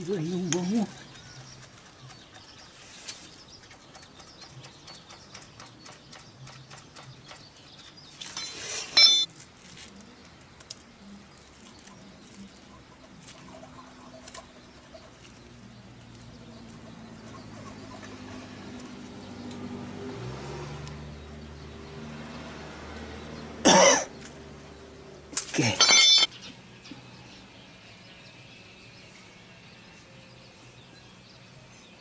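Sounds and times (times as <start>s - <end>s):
low vehicle engine hum: 9.1s - 32.0s.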